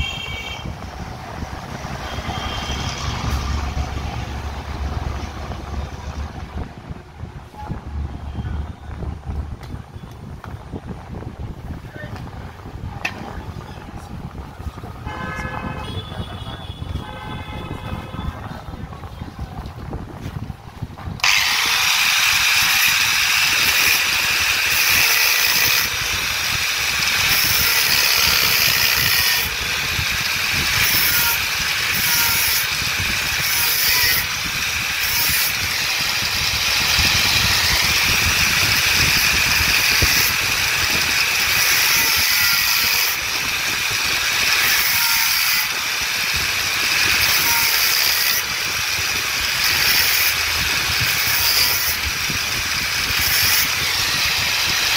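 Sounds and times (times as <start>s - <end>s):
angle grinder grinding steel: 21.2s - 54.9s.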